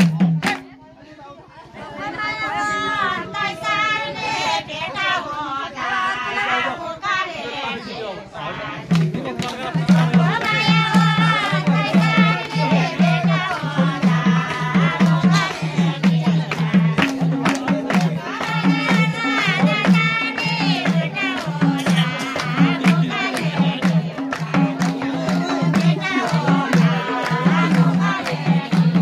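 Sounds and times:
hand drums beating: 0.0 - 0.7, 8.9 - 29.0
folk singing: 1.6 - 29.0.

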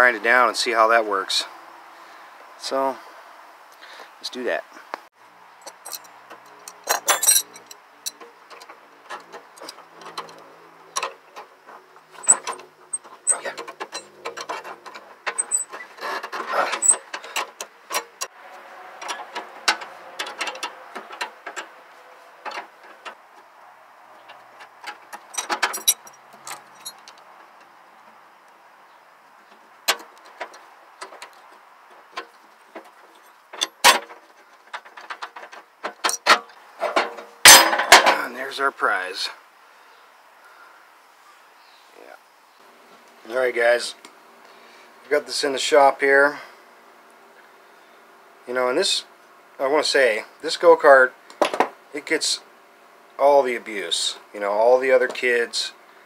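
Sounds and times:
wrenches clinking on nuts: 5.6 - 11.5, 12.2 - 18.3, 19.0 - 21.7, 24.3 - 27.2, 33.2 - 38.3.

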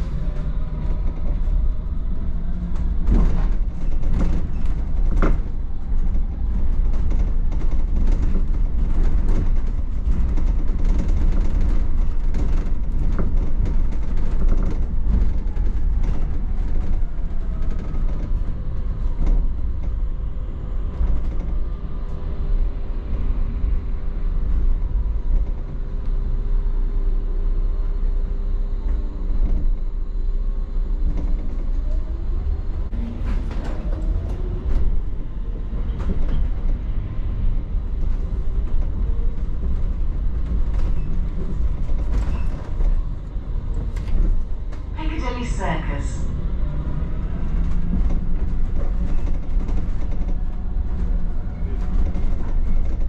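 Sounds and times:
bus low rumble: 0.0 - 53.0
bodywork clicks and rattles: 0.2 - 22.3, 31.0 - 32.1, 32.9 - 44.9, 46.8 - 53.0.

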